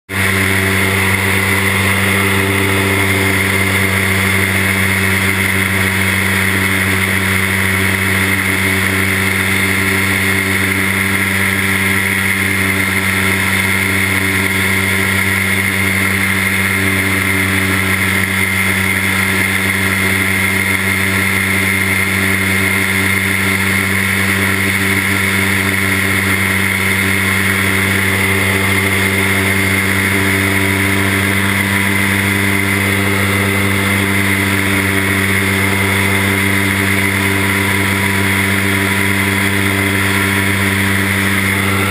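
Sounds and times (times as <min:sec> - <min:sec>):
light aircraft engine droning: 0:00.1 - 0:41.9.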